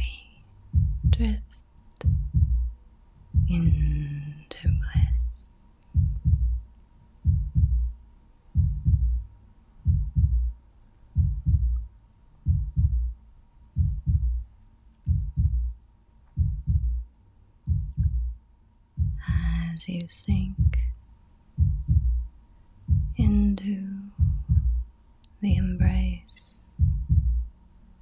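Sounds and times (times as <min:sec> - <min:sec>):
slow heartbeat: 0:00.7 - 0:01.4, 0:02.0 - 0:05.4, 0:06.0 - 0:06.6, 0:07.2 - 0:08.0, 0:08.6 - 0:10.6, 0:11.2 - 0:11.8, 0:12.4 - 0:17.1, 0:17.7 - 0:18.4, 0:19.0 - 0:19.7, 0:20.3 - 0:21.0, 0:21.6 - 0:24.9, 0:25.5 - 0:26.2, 0:26.8 - 0:27.5.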